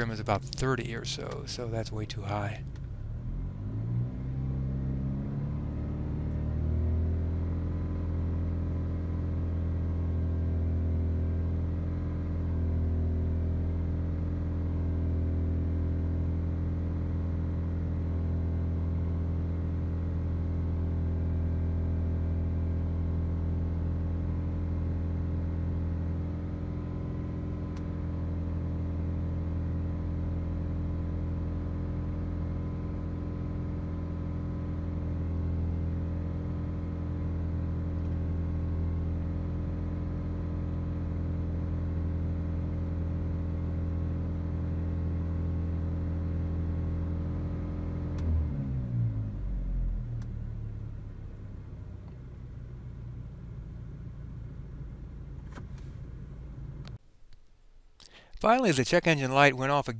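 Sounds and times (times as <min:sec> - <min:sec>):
car engine revving: 0:00.0 - 0:17.2.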